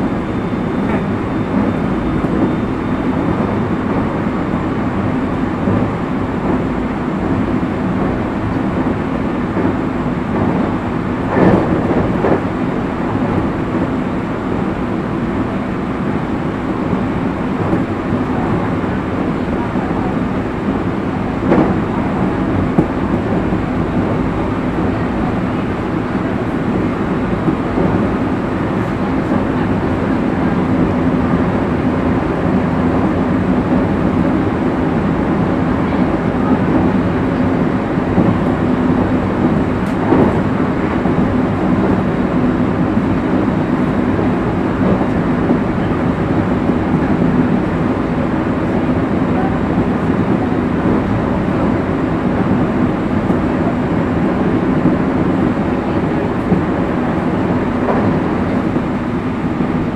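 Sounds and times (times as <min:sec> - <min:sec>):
train wheels rumbling on rail: 0:00.0 - 0:59.9
train knock: 0:05.2 - 0:14.0, 0:20.8 - 0:47.8.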